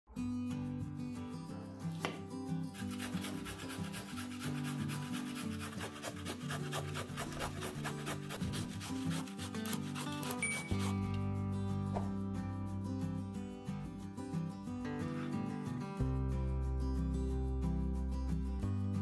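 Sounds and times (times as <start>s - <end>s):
quiet background music: 0.1s - 19.0s
zucchini grated on metal grater: 2.7s - 11.1s.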